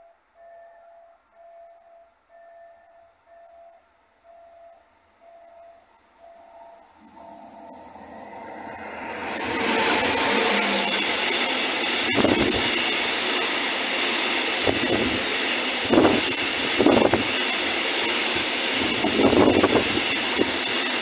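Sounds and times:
train wheels rushing on rail: 6.2 - 21.0.

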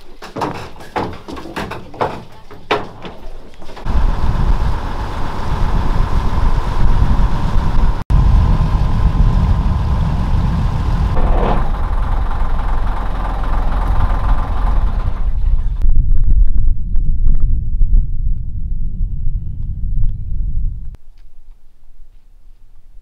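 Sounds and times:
boat engine rumbling: 3.7 - 15.9.

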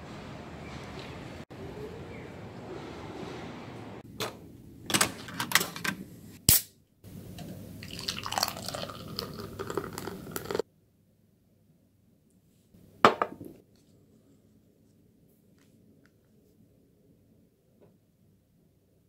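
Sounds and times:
sharp snap: 6.5 - 6.8
beer pouring into glass: 7.8 - 10.6.

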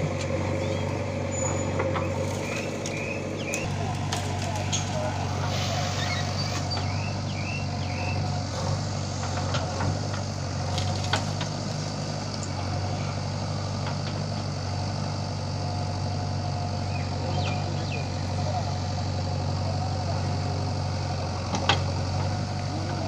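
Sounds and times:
backhoe loader working: 0.0 - 23.0
tractor idling: 0.0 - 23.0.

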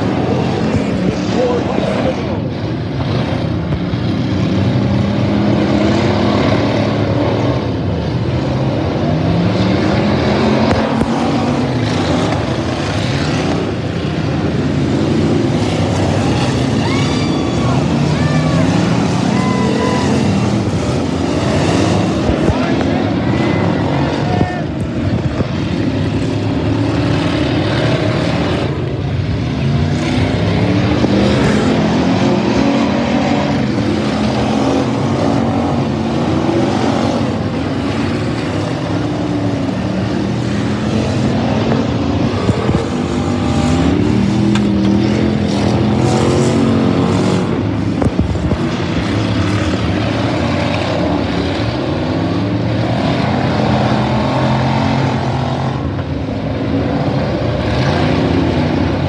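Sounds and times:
race car engines revving: 0.0 - 59.0.

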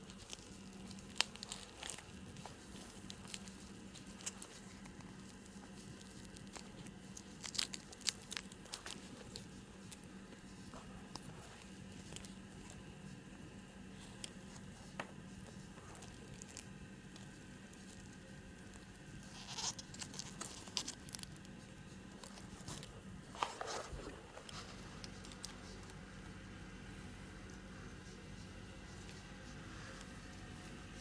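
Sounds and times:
animal chewing and tearing: 0.0 - 31.0
steady low hum: 0.0 - 31.0.

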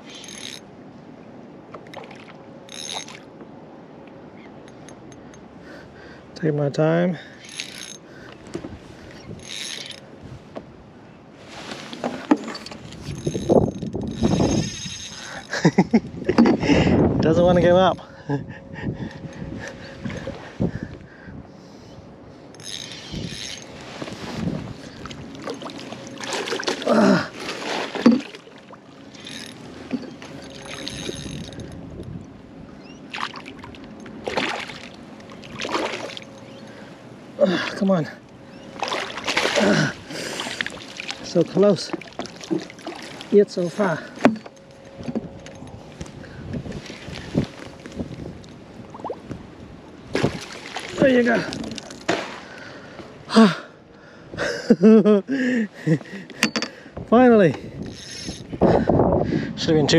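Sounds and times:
fishing reel ratcheting: 0.0 - 0.7, 2.7 - 3.2, 7.4 - 8.0, 9.2 - 10.0, 13.0 - 15.6, 22.5 - 23.7, 29.1 - 29.7, 30.4 - 31.8
water splashing against boat hull: 23.8 - 31.6, 33.1 - 36.3, 38.8 - 45.3, 50.1 - 52.6.

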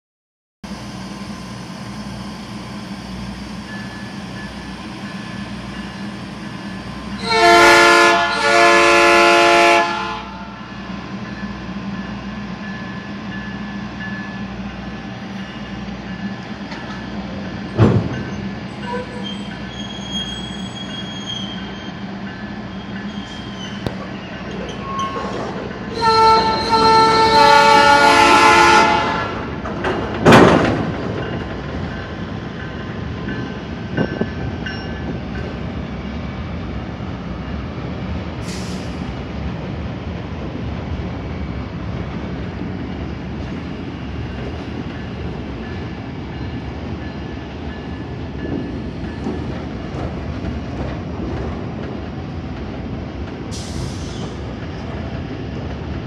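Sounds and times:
locomotive air horn blasts: 7.2 - 10.5, 25.9 - 29.5.

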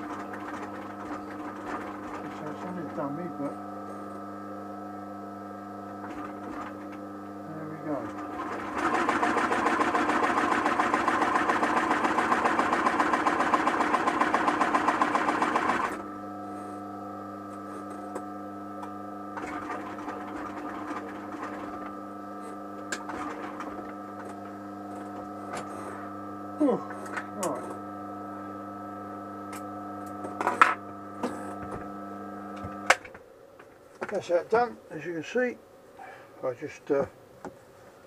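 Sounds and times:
sewing machine stitching: 0.0 - 3.1, 6.0 - 6.9, 7.9 - 16.0, 19.3 - 25.8
steady hum: 0.0 - 38.0.

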